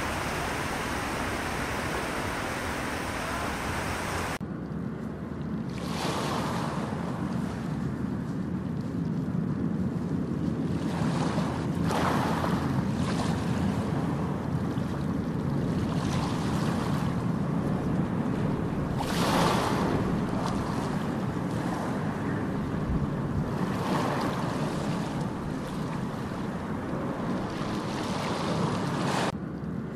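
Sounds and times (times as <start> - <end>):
surf hissing on beach: 0.0 - 4.4
steady low rumble: 0.0 - 5.6.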